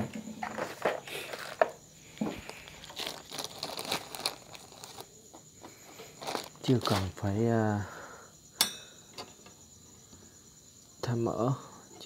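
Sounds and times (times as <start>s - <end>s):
plastic bag crinkling: 1.1s - 7.2s.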